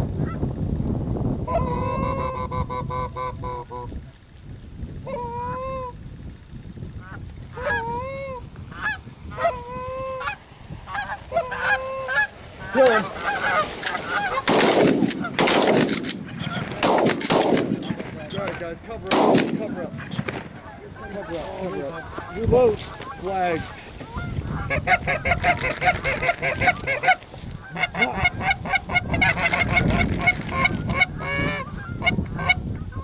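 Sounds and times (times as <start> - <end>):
geese honking: 1.5 - 3.9, 7.0 - 33.0
shotgun shots: 14.4 - 20.6.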